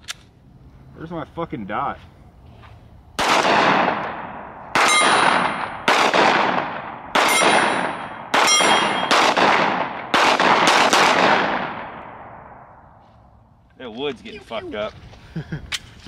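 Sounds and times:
handgun shots echoing: 3.2 - 12.3
metallic ring of steel target: 4.1 - 5.9, 6.7 - 9.3.

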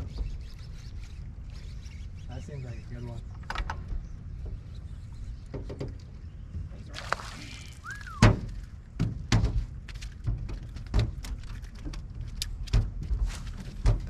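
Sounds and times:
thumps on boat deck: 8.2 - 11.3, 12.7 - 14.0.

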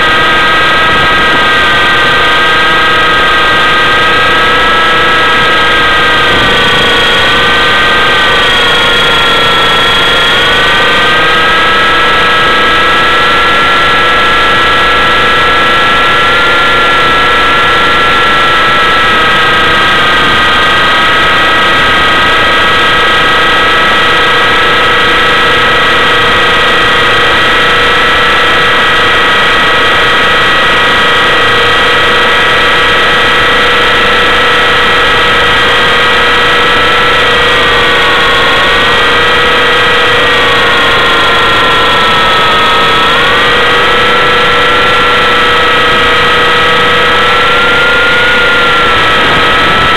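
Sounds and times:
rushing noise: 0.0 - 30.9
helicopter rotor whine: 0.0 - 49.9.

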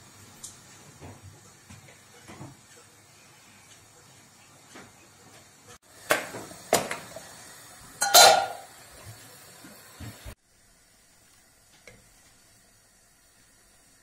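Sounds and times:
metal pots and lids clanking: 8.0 - 8.7.

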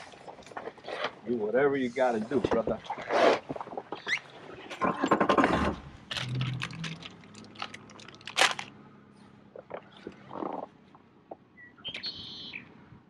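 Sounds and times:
rustling and scraping: 0.0 - 8.7.

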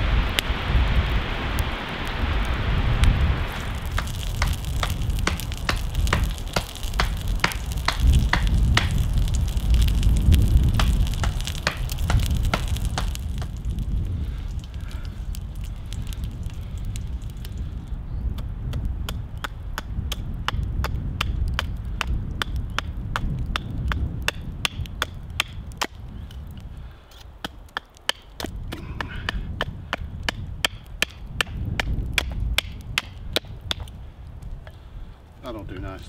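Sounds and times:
low rumble: 0.0 - 19.3.

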